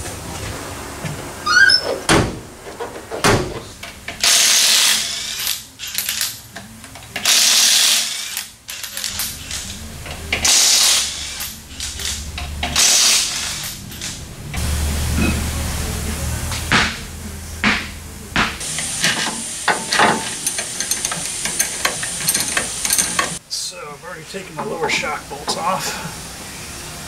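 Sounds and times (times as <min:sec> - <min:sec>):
pneumatic air tool bursts: 0:04.2 - 0:05.6, 0:07.2 - 0:08.5, 0:10.4 - 0:11.5, 0:12.8 - 0:13.7.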